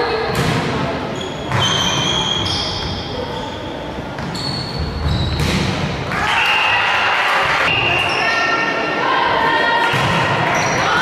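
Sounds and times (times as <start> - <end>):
sneakers squeaking: 0.3 - 6.0, 9.9 - 11.0.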